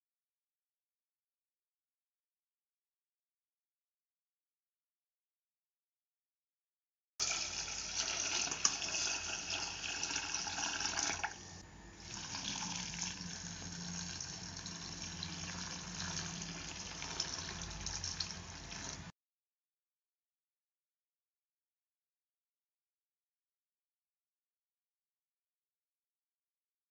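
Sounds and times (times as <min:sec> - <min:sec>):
tap water pouring into bowl: 0:07.2 - 0:11.4, 0:12.0 - 0:19.1.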